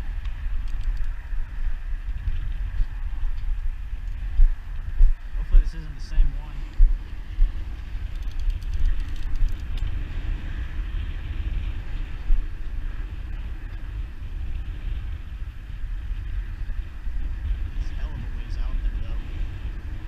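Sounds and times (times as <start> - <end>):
wind buffeting microphone: 0.0 - 20.0
faint clicks: 0.2 - 1.2, 8.0 - 10.0.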